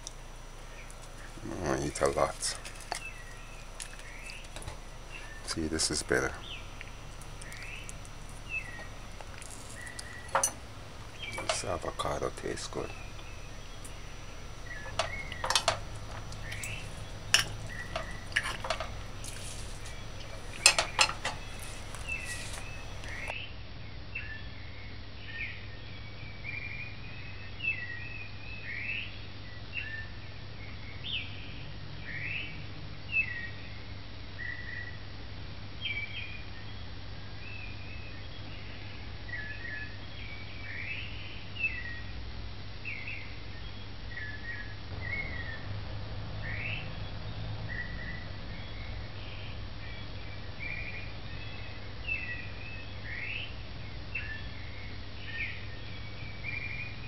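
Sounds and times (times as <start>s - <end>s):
low steady hum: 0.0s - 23.4s
fork scraping on plate: 14.8s - 23.3s.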